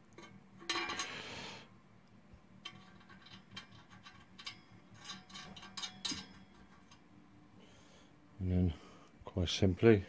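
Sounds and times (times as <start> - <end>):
small metal parts clicking: 2.6 - 7.0.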